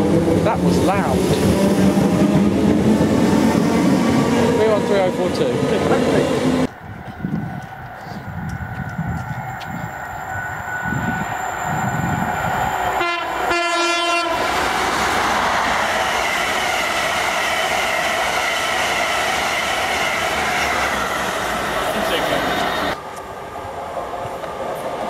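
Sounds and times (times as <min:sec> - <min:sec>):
train passing at speed: 0:00.0 - 0:25.0
wheels on rail: 0:00.0 - 0:25.0
train horn blasts: 0:13.0 - 0:14.4.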